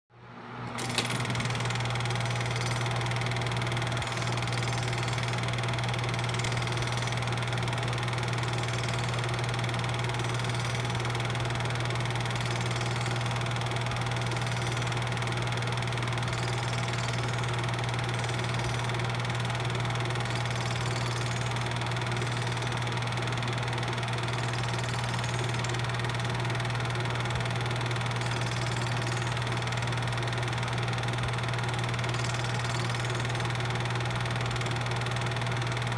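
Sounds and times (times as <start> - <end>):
film projector motor hum: 0.3 - 35.9.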